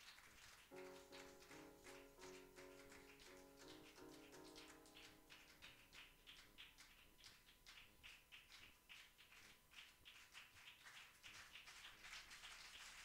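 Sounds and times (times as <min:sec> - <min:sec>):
music: 0:00.7 - 0:07.0.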